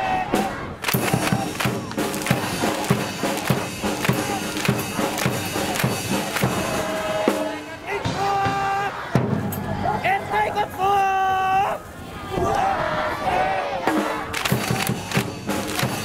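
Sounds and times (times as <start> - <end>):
band playing a fight song: 0.2 - 9.5, 13.8 - 16.0
drum beat: 0.4 - 9.5, 13.9 - 16.0.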